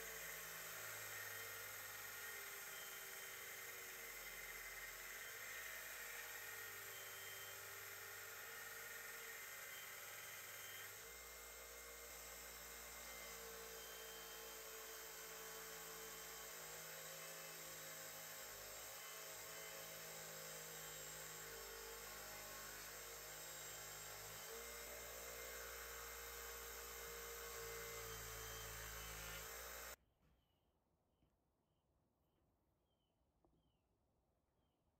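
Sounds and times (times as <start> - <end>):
belt grinder grinding steel: 0.0 - 30.0.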